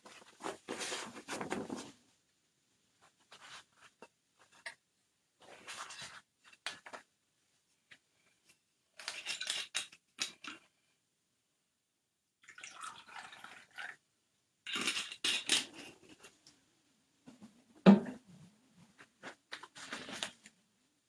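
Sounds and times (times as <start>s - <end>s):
tableware clinking and clattering: 9.0s - 10.5s, 14.7s - 16.0s.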